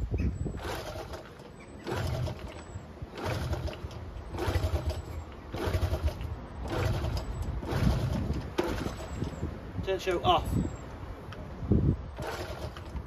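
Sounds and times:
motorcycle engine turning over: 0:00.4 - 0:09.6, 0:12.1 - 0:13.0.

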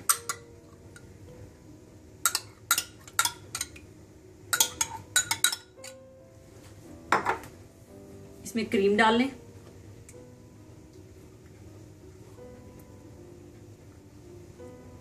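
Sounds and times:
metal spoon clinking on glass: 0:04.5 - 0:06.0.

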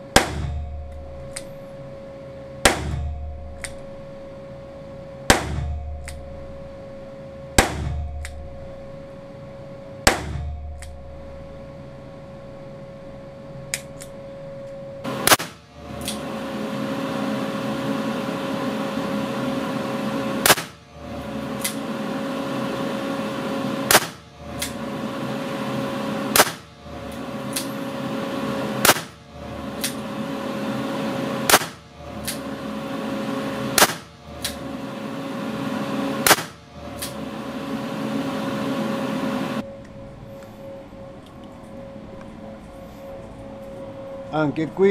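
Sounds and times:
faint hum: 0:00.0 - 0:44.9
revolver shots: 0:20.3 - 0:20.8, 0:23.8 - 0:24.8, 0:26.2 - 0:26.7, 0:28.7 - 0:29.2, 0:31.4 - 0:32.4, 0:33.7 - 0:34.6, 0:36.2 - 0:37.2.

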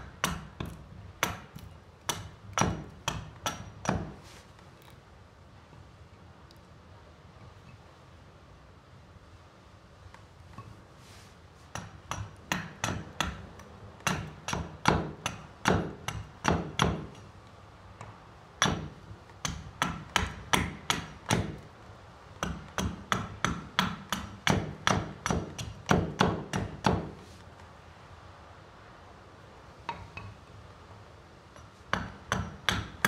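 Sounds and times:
axe striking wood: 0:00.0 - 0:04.2, 0:11.7 - 0:17.2, 0:18.6 - 0:21.6, 0:22.4 - 0:27.2, 0:31.9 - 0:33.0.

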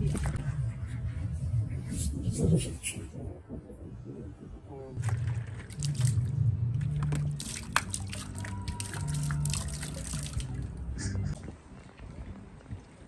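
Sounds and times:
water dripping and splashing: 0:05.0 - 0:11.0.

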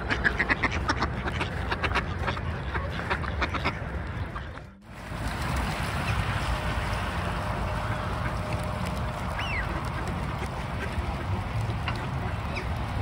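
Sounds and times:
ducks quacking: 0:00.0 - 0:04.8, 0:05.5 - 0:13.0
flowing water rushing: 0:04.8 - 0:13.0.

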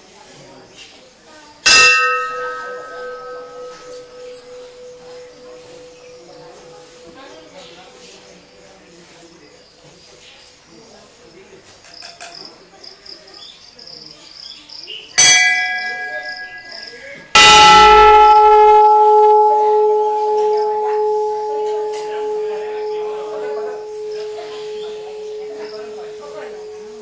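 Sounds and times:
metal temple bell ringing: 0:01.6 - 0:10.2, 0:15.2 - 0:27.0.

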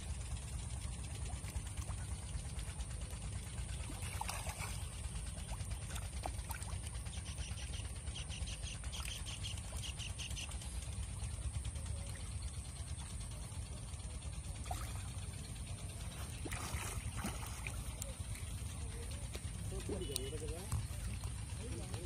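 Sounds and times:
steady low rumble: 0:00.0 - 0:22.0
fish splashing at water surface: 0:03.7 - 0:06.9, 0:16.0 - 0:20.0.

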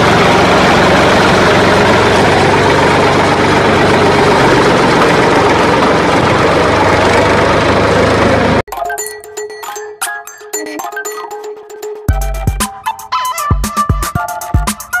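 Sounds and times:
tractor engine idling: 0:00.0 - 0:08.7.

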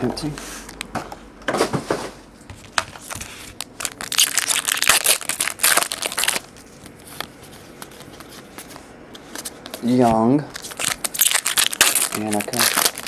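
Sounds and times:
foil wrapper crinkling: 0:02.7 - 0:13.0.

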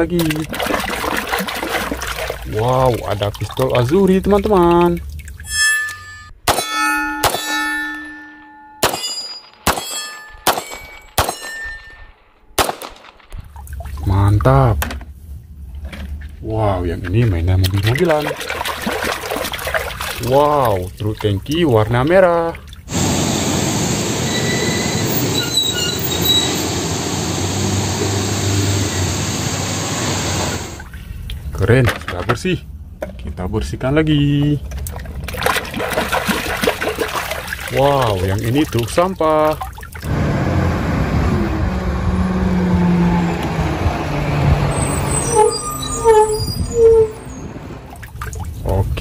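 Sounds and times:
faint high squeals: 0:05.4 - 0:07.1, 0:24.1 - 0:26.8, 0:44.6 - 0:47.6
short metallic ring: 0:05.4 - 0:12.4
pistol shots: 0:08.8 - 0:11.6, 0:12.6 - 0:13.4
trucks driving on wet road: 0:22.9 - 0:30.8, 0:40.1 - 0:47.9
low engine hum: 0:26.0 - 0:31.1, 0:40.1 - 0:45.5.

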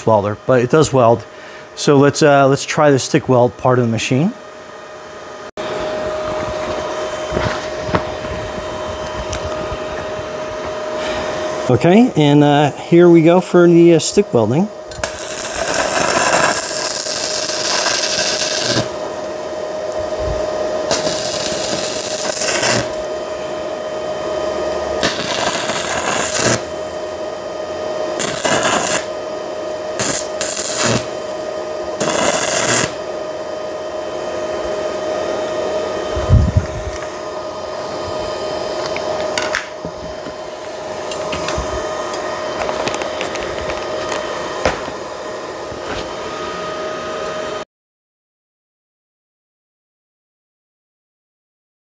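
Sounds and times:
welding arc crackling and hissing: 0:07.2 - 0:23.4, 0:24.9 - 0:27.4, 0:28.1 - 0:29.2, 0:29.9 - 0:33.1
low thump: 0:44.6 - 0:44.9.

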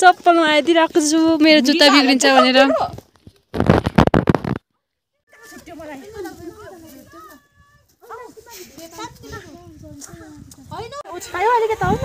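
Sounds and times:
wind buffeting microphone: 0:06.1 - 0:12.0.

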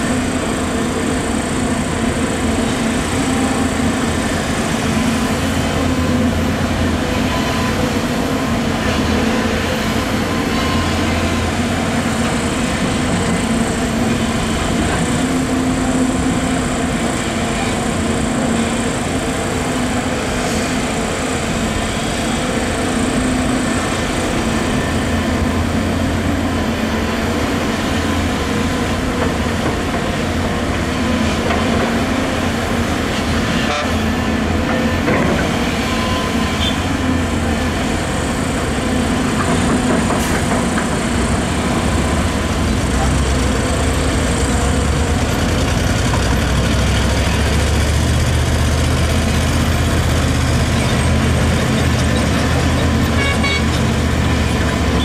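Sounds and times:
excavator diesel engine: 0:00.0 - 0:55.0.

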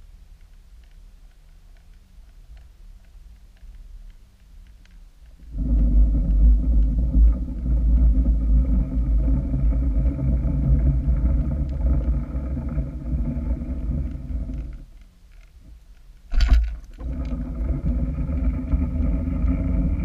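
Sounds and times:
underwater boat engine rumble: 0:05.4 - 0:20.0.

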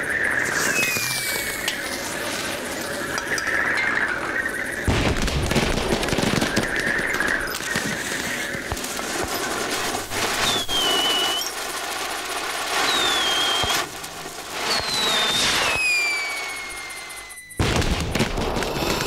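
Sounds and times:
high falling whistle: 0:00.0 - 0:02.0, 0:10.1 - 0:11.6, 0:12.7 - 0:17.8
cartoon firework crackling pops: 0:04.9 - 0:19.0.

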